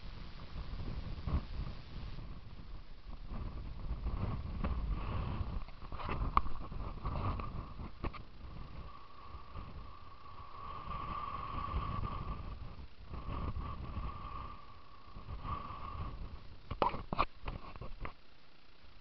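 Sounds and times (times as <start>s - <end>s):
wind buffeting microphone: 0.0s - 18.1s
thin steady whine: 0.0s - 19.0s.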